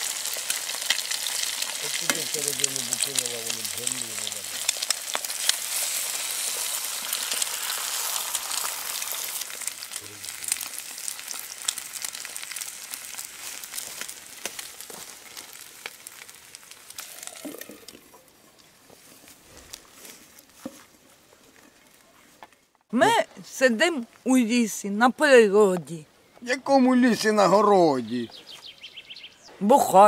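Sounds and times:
food sizzling in a frying pan: 0.0s - 18.1s
wood fire crackling: 0.0s - 29.2s.

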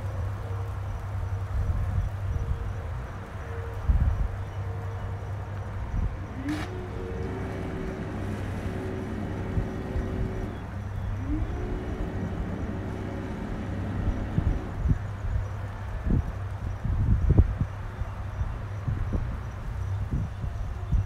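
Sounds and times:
boat engines idling: 5.1s - 16.6s
rising whine: 6.0s - 15.1s.

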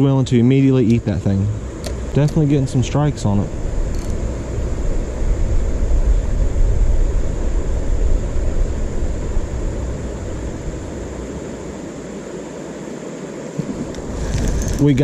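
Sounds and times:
wind buffeting microphone: 1.6s - 11.3s.

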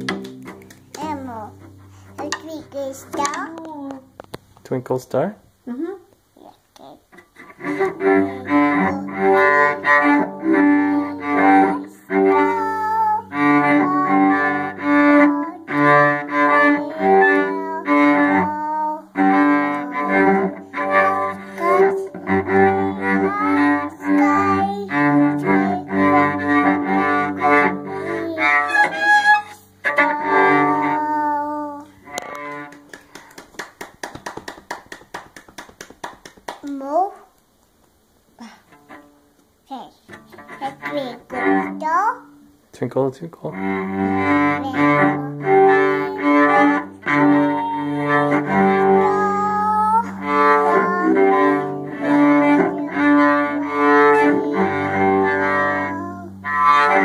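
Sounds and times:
cello bowing: 0.0s - 4.0s, 7.1s - 33.2s, 38.4s - 39.3s, 40.1s - 41.9s, 42.8s - 57.0s
child singing: 8.0s - 31.9s, 44.4s - 56.6s.

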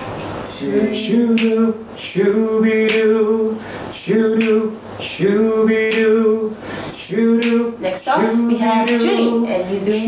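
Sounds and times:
baritone voice singing a cappella: 0.5s - 10.0s
singer breathing: 6.6s - 7.0s.

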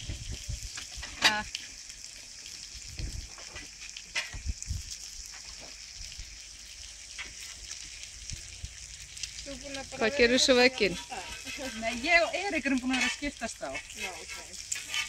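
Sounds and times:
food sizzling on griddle: 0.0s - 15.0s.

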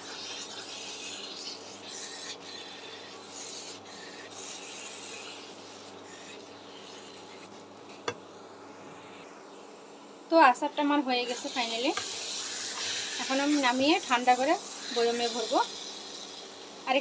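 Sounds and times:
spatula scraping a pan: 11.2s - 15.9s.

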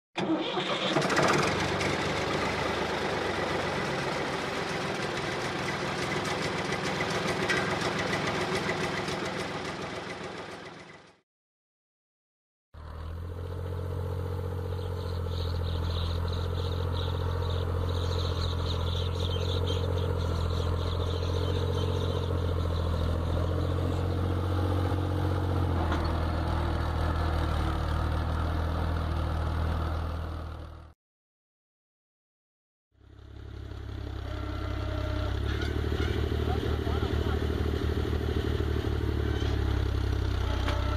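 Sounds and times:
tractor diesel engine humming: 0.2s - 11.1s, 12.8s - 30.8s, 33.1s - 40.9s.

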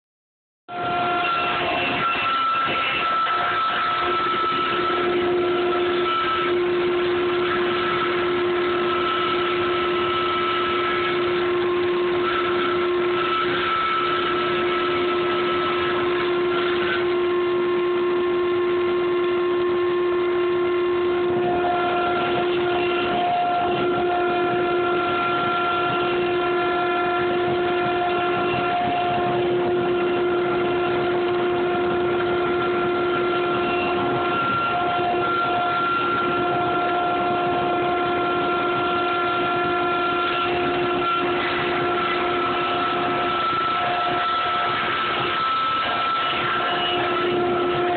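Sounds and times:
table saw ripping a board: 0.7s - 17.2s, 21.4s - 47.9s.

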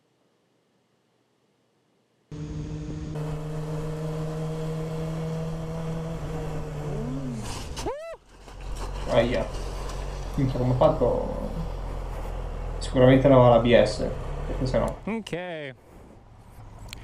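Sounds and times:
motorcycle engine running: 2.3s - 7.6s.

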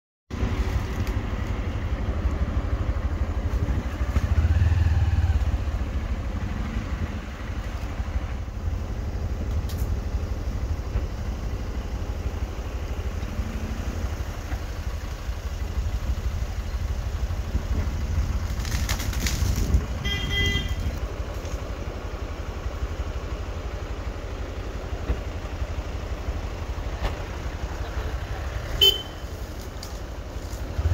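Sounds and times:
vehicle engine rumbling: 0.3s - 30.9s
short horn toot: 20.0s - 20.9s, 28.8s - 29.3s.

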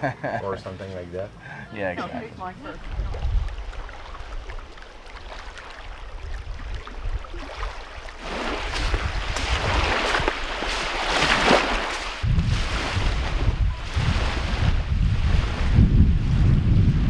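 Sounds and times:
wind rumbling on microphone: 2.3s - 17.0s
water washing up beach: 2.5s - 16.6s
boots crunching on wet sand: 8.2s - 13.3s.

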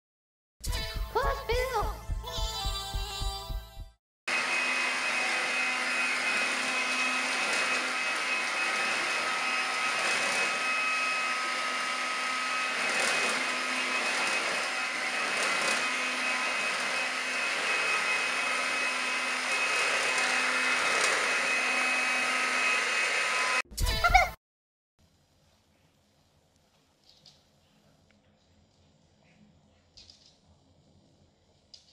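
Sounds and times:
vacuum cleaner running: 3.2s - 23.6s.

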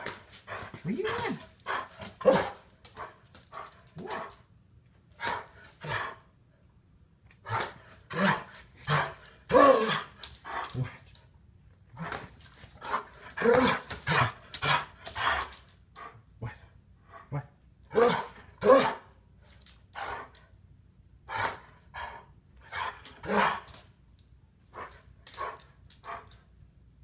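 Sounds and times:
dog barking: 18.0s - 19.0s.

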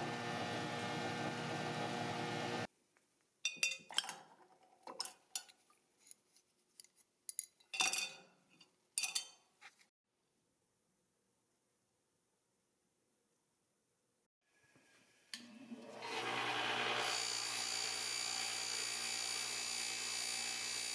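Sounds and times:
metal parts clinking against glass: 7.3s - 9.4s.

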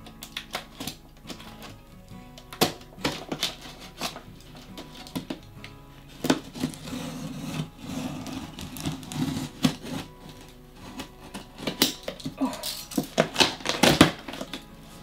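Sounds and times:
blade slicing packing tape: 2.5s - 5.3s, 6.2s - 14.6s
cardboard scraping and rubbing: 3.0s - 5.4s, 6.1s - 12.3s.

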